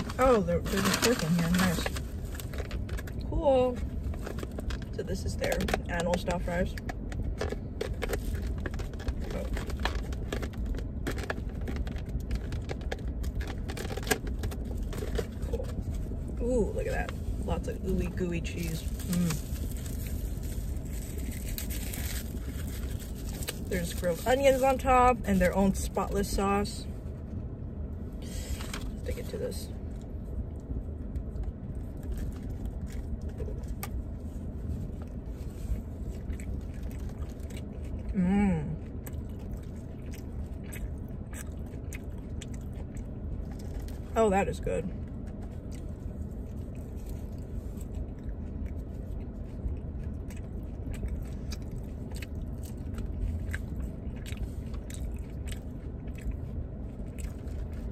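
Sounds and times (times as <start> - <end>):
low rumble: 0.0 - 57.9
eating sounds: 35.8 - 44.1.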